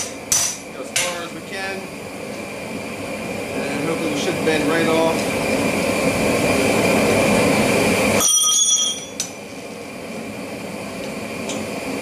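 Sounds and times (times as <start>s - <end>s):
steady rushing noise: 0.2s - 8.2s
hammer ringing on anvil: 8.2s - 9.2s.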